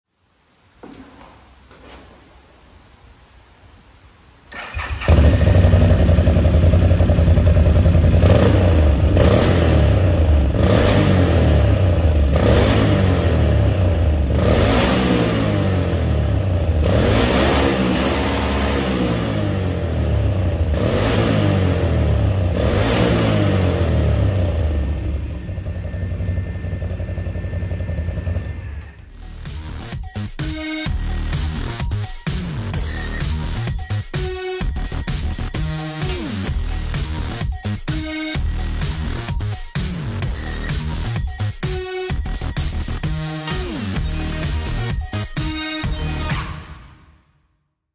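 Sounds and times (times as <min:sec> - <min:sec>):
engine revving and idling: 0:04.8 - 0:29.1.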